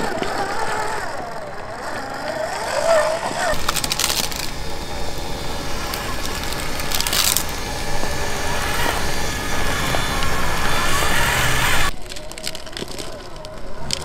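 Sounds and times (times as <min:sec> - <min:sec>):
electric motor whine: 0:00.0 - 0:12.0
tyres crunching over dirt: 0:02.8 - 0:14.0.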